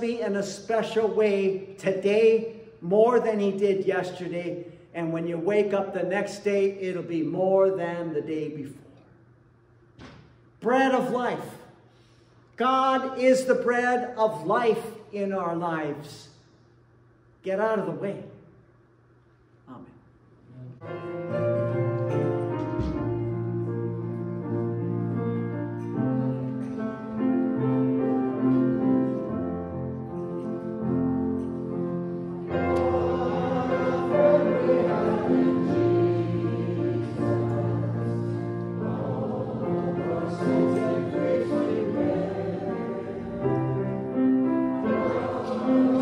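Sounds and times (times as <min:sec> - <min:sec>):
keyboard chords: 0:20.8 - 0:46.0
voices singing a hymn: 0:32.4 - 0:46.0.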